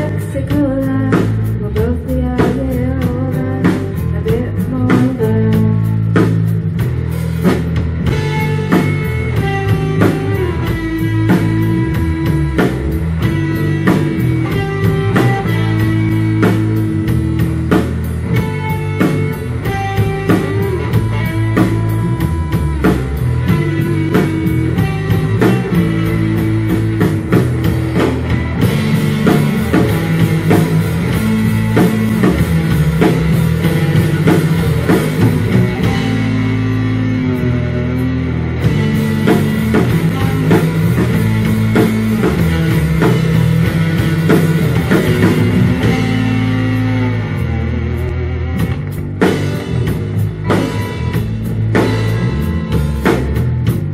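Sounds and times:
rock band playing: 0:00.0 - 0:53.9.

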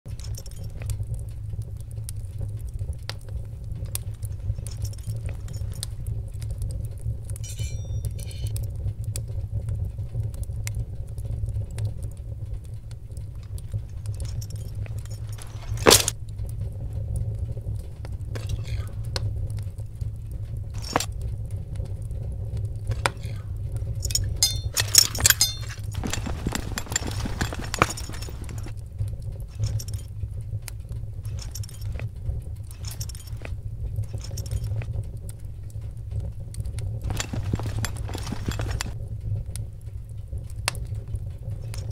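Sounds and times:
metallic jingling: 0:00.1 - 0:00.9, 0:04.0 - 0:06.0, 0:07.4 - 0:08.6, 0:13.4 - 0:16.1, 0:20.8 - 0:21.1, 0:23.9 - 0:28.8, 0:29.5 - 0:30.1, 0:31.2 - 0:32.1, 0:32.7 - 0:34.9, 0:37.0 - 0:39.0
clicks and knocks: 0:13.4 - 0:16.2, 0:20.7 - 0:21.2, 0:24.0 - 0:28.8.

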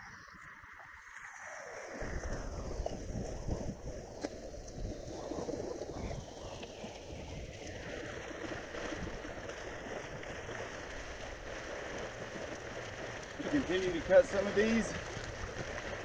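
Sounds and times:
water lapping against rocks: 0:00.0 - 0:16.0
wind buffeting microphone: 0:01.9 - 0:16.0.

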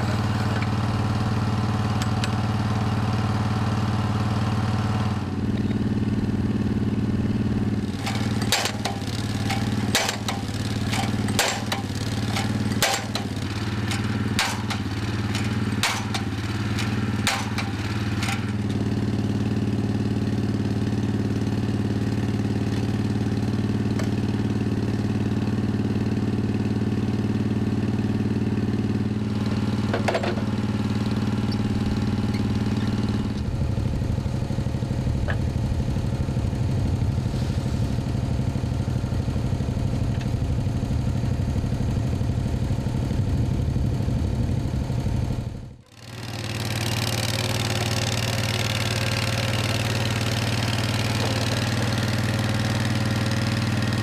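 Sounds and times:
drilling rig engine running: 0:00.0 - 0:54.0
hammer striking drive tube: 0:08.0 - 0:18.5.

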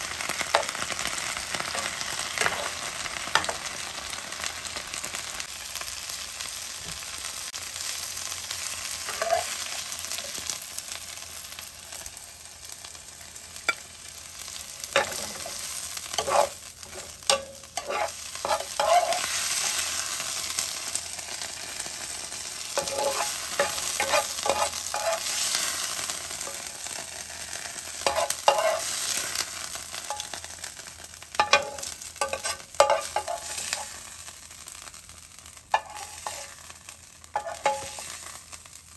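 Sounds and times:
greens sizzling in a frying pan: 0:00.0 - 0:38.9
metal spoon clinking and scraping pan: 0:01.7 - 0:03.6, 0:09.1 - 0:09.7, 0:14.8 - 0:20.1, 0:22.8 - 0:26.8, 0:28.0 - 0:29.4, 0:30.0 - 0:30.4, 0:31.4 - 0:34.0, 0:35.7 - 0:36.7, 0:37.4 - 0:38.4.

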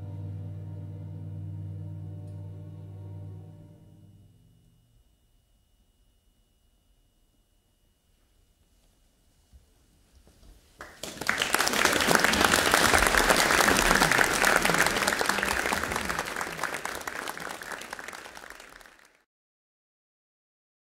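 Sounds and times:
audience applauding: 0:10.8 - 0:19.2.

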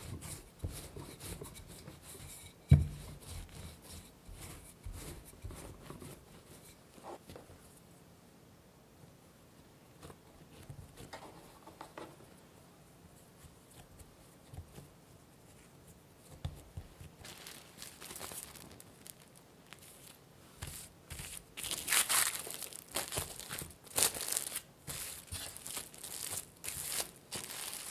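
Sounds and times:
hands patting dough: 0:00.0 - 0:07.4, 0:13.3 - 0:27.9
cling wrap crinkling: 0:17.2 - 0:27.9.

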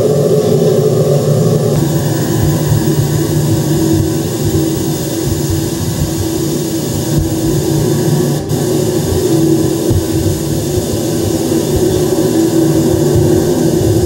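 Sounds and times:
low rumbling drone: 0:00.0 - 0:14.0.

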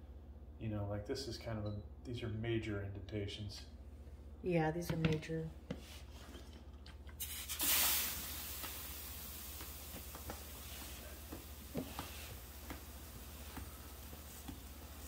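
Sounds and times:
steam iron hissing: 0:07.2 - 0:15.0.

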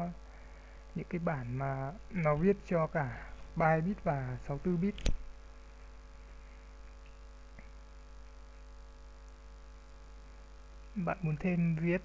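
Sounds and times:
electrical hum: 0:00.0 - 0:12.0
sharp click: 0:04.9 - 0:05.3.

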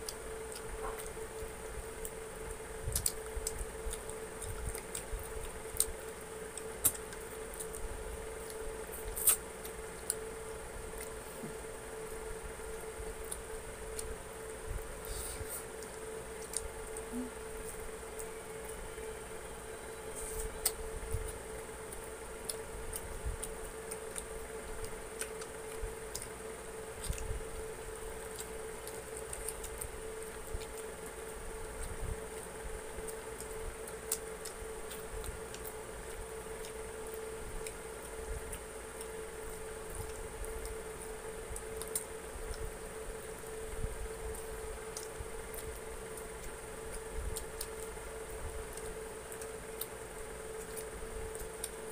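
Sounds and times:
faint steady hum: 0:00.0 - 0:51.9
people chewing chicken wings: 0:00.0 - 0:51.9.

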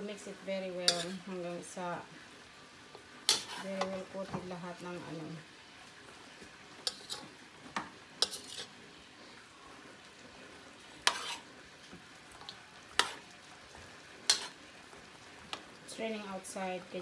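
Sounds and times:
faint steady hiss: 0:00.0 - 0:17.0
metal spoon clinking and scraping pan: 0:00.8 - 0:01.3, 0:03.3 - 0:04.1, 0:06.8 - 0:07.4, 0:08.2 - 0:08.8, 0:11.0 - 0:11.5, 0:12.9 - 0:13.2, 0:14.2 - 0:14.6.

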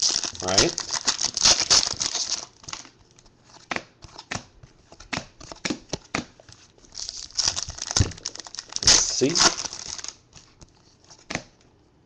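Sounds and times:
crinkling: 0:00.0 - 0:03.4, 0:06.4 - 0:11.3.

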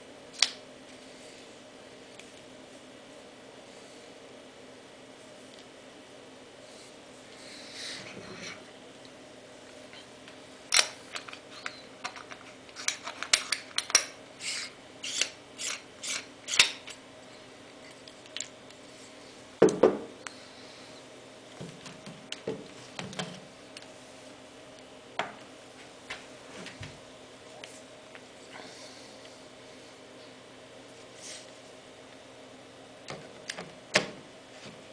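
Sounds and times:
knocks on wooden desk: 0:19.6 - 0:20.1.

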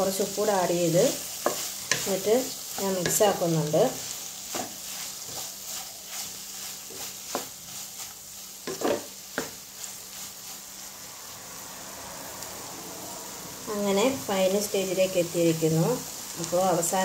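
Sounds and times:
light frying sizzle: 0:00.0 - 0:17.0
wooden spatula scraping a pan: 0:00.7 - 0:10.9.

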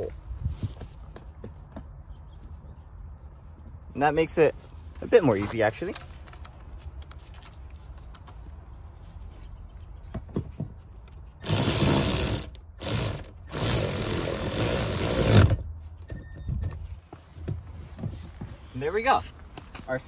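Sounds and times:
cordless ratchet running: 0:11.4 - 0:15.6.

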